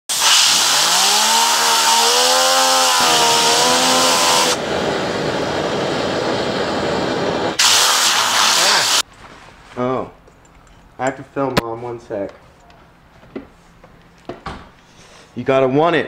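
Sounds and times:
compressed air hissing: 0.1s - 9.0s
gas torch flame rushing: 0.1s - 9.0s.

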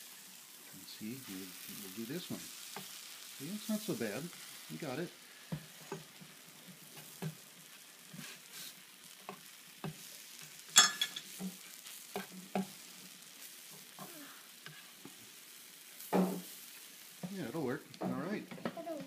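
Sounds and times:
pancakes sizzling on griddle: 0.0s - 19.0s
sharp clink: 10.8s - 11.2s.

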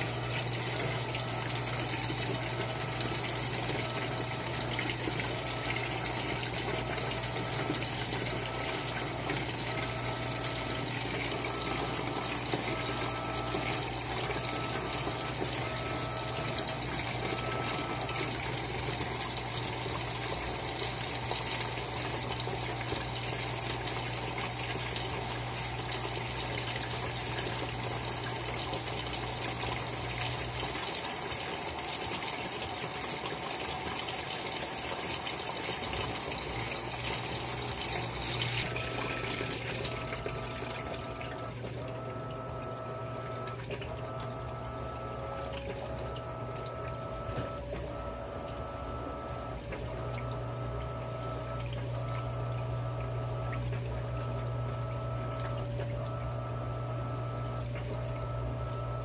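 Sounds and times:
washing machine drum churning: 0.0s - 59.0s
water rushing into washing machine: 0.0s - 59.0s.

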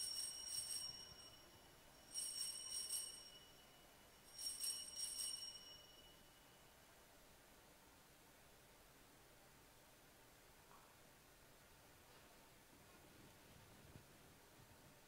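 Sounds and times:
altar bells ringing: 0.0s - 6.7s.

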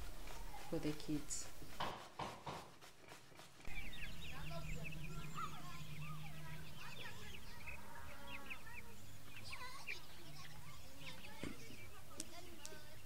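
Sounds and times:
chicks peeping and cheeping: 0.0s - 13.0s
low steady hum: 3.6s - 13.0s.

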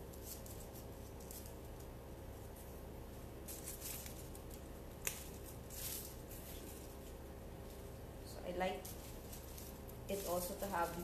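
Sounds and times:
leaves and stems rustling: 0.0s - 11.0s
low steady hum: 0.0s - 11.0s.

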